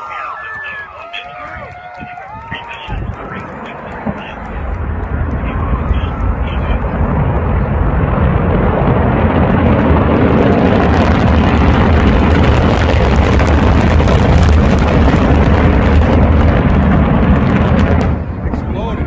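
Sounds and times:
explosion roar with crackling: 0.0s - 19.0s.

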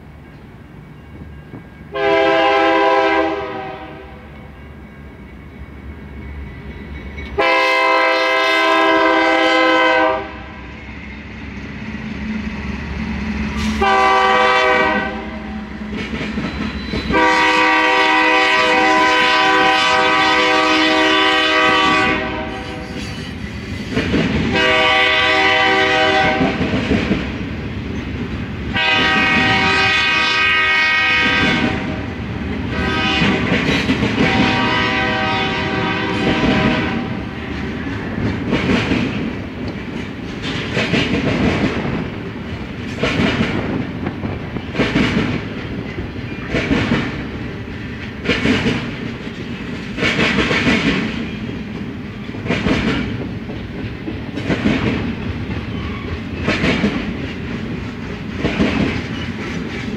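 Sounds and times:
clickety-clack of rail cars: 0.0s - 59.9s
train rumble: 0.0s - 59.9s
locomotive air horn blasts: 1.9s - 4.2s, 7.4s - 10.6s, 13.7s - 15.6s, 17.1s - 23.0s, 24.5s - 26.6s, 28.7s - 32.1s, 32.7s - 33.5s, 34.2s - 37.4s.

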